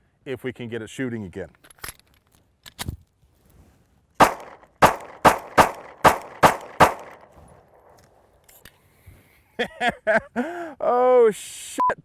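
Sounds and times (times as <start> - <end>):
pistol shots ringing: 4.2 - 7.2.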